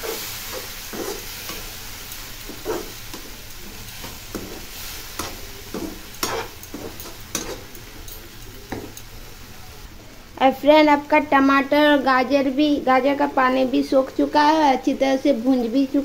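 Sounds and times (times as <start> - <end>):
spatula scraping a pan: 0.0 - 7.8
low sizzle of frying: 0.0 - 16.0.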